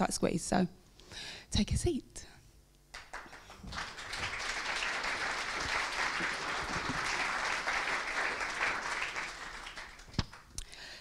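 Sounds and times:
audience applauding: 2.9 - 10.5.

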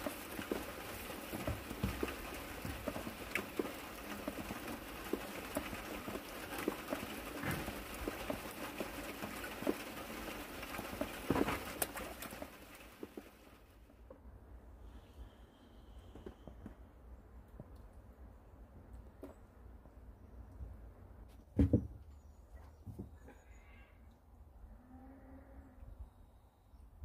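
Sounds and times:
rain pattering on a pond: 0.0 - 14.0.

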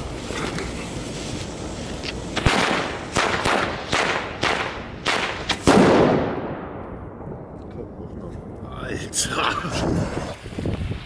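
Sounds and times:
firecrackers banging: 0.0 - 7.6.

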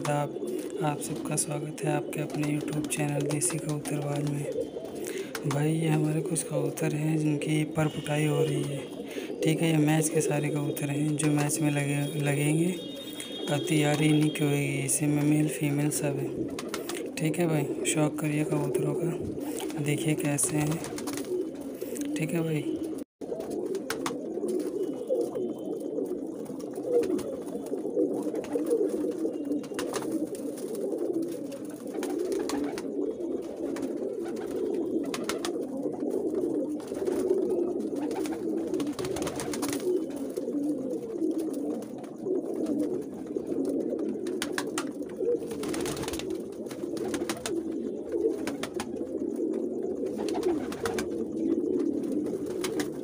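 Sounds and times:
pigeons cooing: 0.0 - 53.0.

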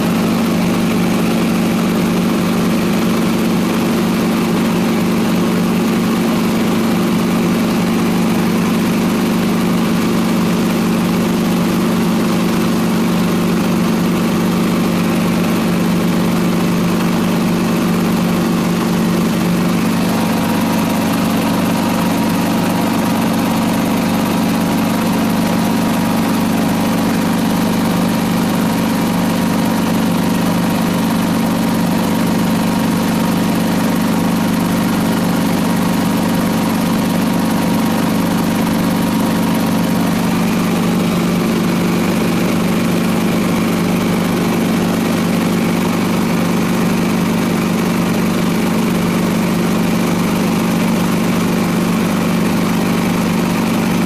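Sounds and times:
helicopter cabin drone: 11.0 - 31.5.

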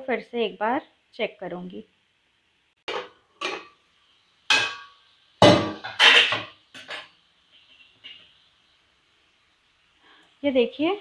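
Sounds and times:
metal lid clanking on pan: 2.9 - 3.7, 4.5 - 7.1.

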